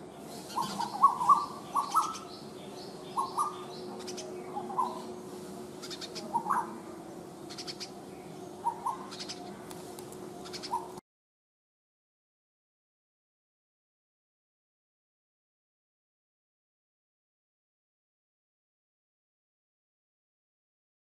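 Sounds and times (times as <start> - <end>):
faint steady hum: 0.0 - 11.0
small birds chirping: 0.0 - 11.0
birds giving short low calls: 0.2 - 6.8, 7.4 - 11.0.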